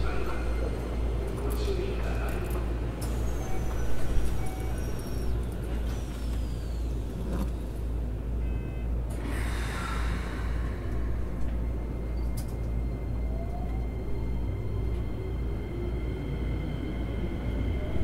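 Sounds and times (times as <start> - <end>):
traction motor whine: 2.8 - 9.3.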